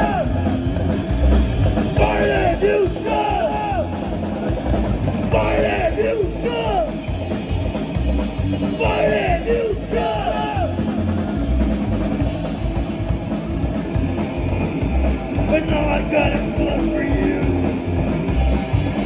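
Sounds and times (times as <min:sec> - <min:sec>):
loud live band: 0:00.0 - 0:19.0.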